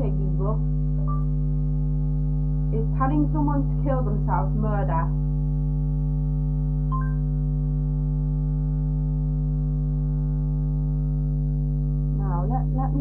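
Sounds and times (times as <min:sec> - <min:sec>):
electrical mains hum: 0:00.0 - 0:13.0
short electronic beep: 0:06.9 - 0:07.2.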